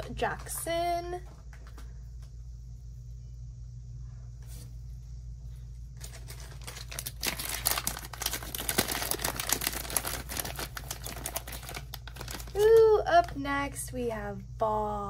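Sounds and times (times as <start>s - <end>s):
plastic bag crinkling: 6.0s - 13.3s.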